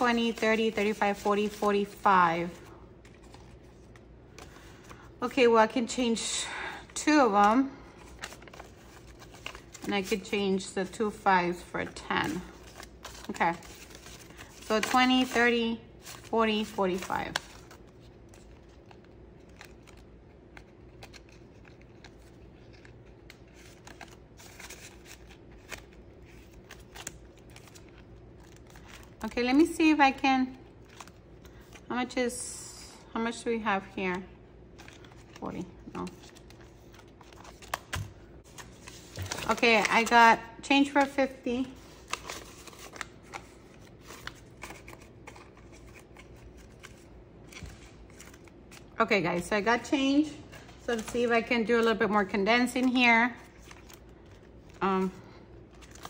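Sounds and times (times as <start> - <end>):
paper crackles: 0.0 - 5.4, 7.1 - 32.2, 34.7 - 49.0, 50.2 - 56.0
banknotes rustling: 0.0 - 32.2, 34.7 - 56.0
plastic pockets crinkling: 7.3 - 10.6, 11.9 - 31.9, 34.7 - 49.0.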